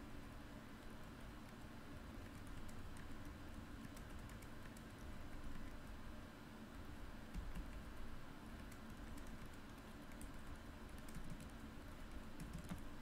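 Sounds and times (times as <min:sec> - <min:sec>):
faint keyboard typing: 0:00.7 - 0:06.0, 0:07.2 - 0:13.0.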